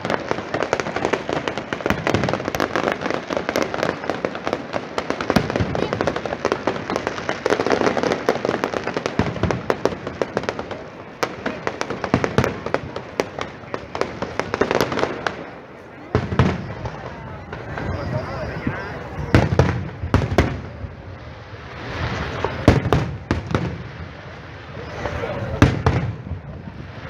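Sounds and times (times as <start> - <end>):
fireworks bangs: 0.0 - 27.0
fireworks crackling: 0.0 - 27.0.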